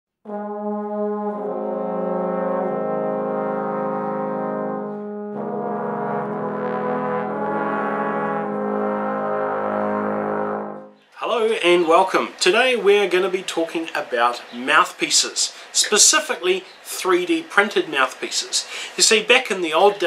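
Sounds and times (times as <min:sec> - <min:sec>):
brass sustained chords: 0:00.2 - 0:11.0.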